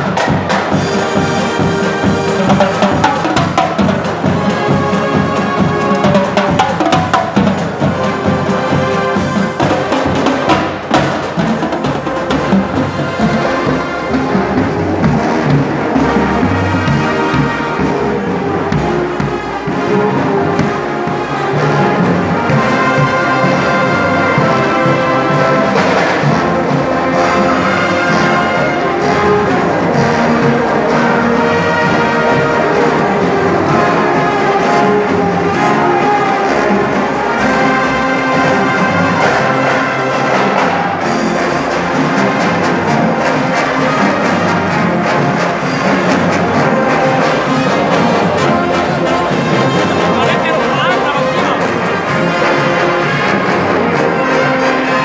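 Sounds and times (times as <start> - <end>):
brass section with sousaphones: 0.0 - 55.0
bass drums and percussion: 38.4 - 54.2.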